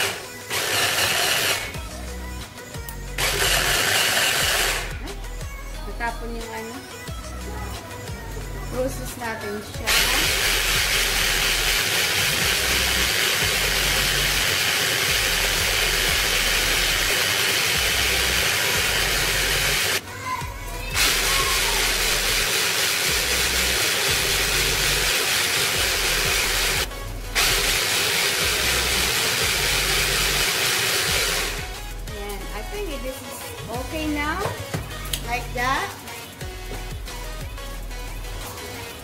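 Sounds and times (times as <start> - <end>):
electric food chopper running: 0.0 - 1.8, 3.2 - 5.0, 9.9 - 20.0, 21.0 - 31.8.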